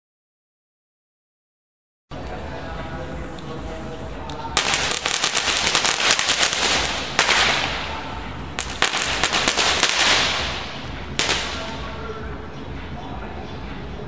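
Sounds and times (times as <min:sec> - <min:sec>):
firework cracks: 0:04.6 - 0:11.8.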